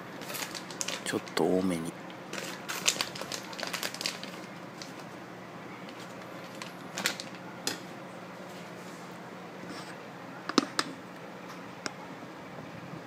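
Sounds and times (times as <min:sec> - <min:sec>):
dried kelp crinkling by hand: 0:00.2 - 0:05.2, 0:05.8 - 0:07.8.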